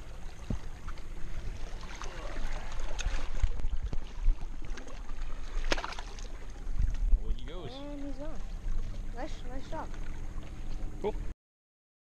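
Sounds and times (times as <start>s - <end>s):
water lapping at rocks: 0.0s - 11.2s
wind rumbling on microphone: 6.5s - 9.8s.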